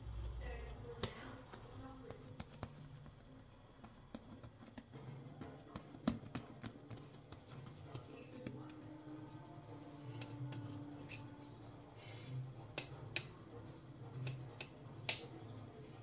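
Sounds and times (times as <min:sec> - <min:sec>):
hands slapping bread dough: 0:00.8 - 0:08.8, 0:14.2 - 0:15.4.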